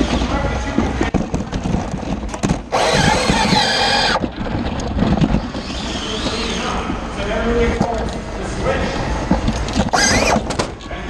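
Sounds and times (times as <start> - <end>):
arena noise: 0.0 - 11.0
electric motors whining: 2.7 - 4.3, 5.3 - 6.8, 9.8 - 10.6.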